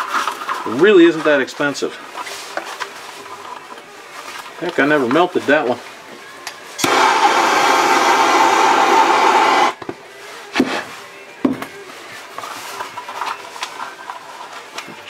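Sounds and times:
gas torch flame hissing: 6.8 - 9.8.

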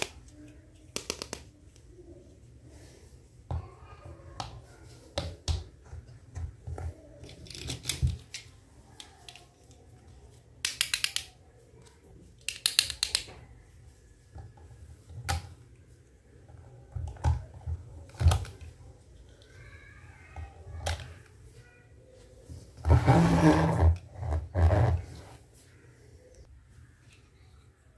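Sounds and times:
plastic toy pieces clicking: 0.8 - 1.5, 7.2 - 9.8, 10.6 - 11.4, 12.4 - 13.4.

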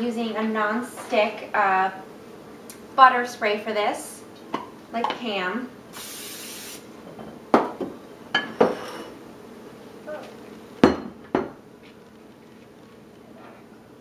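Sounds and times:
cooking spray hiss: 5.9 - 7.0.

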